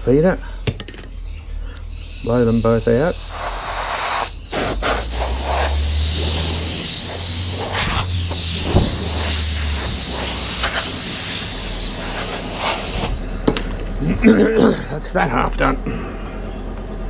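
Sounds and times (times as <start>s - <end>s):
compressed-air blow gun hissing: 1.7s - 13.4s
low hum: 4.3s - 15.1s.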